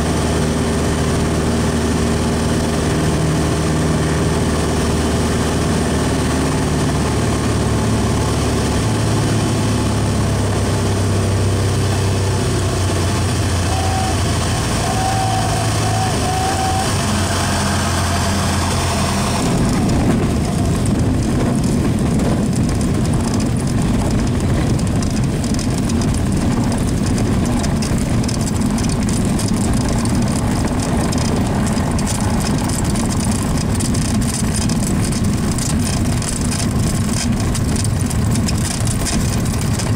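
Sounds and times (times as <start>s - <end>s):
airplane engine droning: 0.0s - 36.0s
plane rolling on rough grass: 11.7s - 39.9s.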